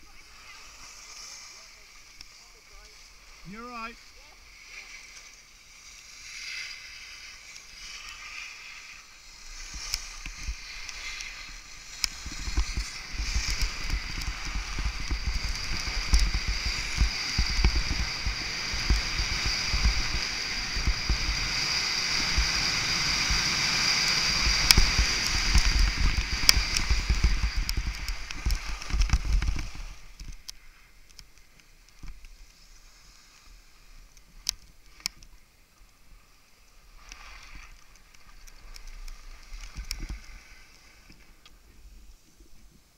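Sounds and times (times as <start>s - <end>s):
skis scraping over snow: 0.0s - 42.9s
wind buffeting microphone: 12.0s - 29.9s.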